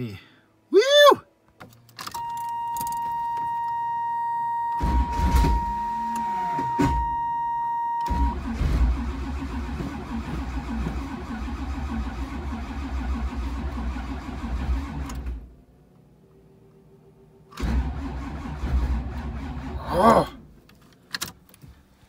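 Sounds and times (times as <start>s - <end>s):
engine starter cranking: 8.0s - 15.4s, 17.5s - 19.8s.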